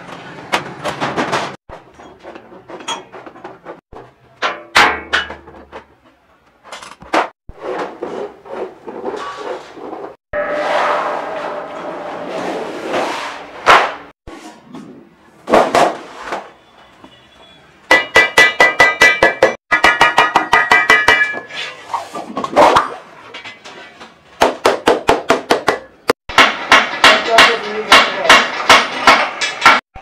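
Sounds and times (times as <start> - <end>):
mallet striking ringing steel sheet: 10.4 - 12.3.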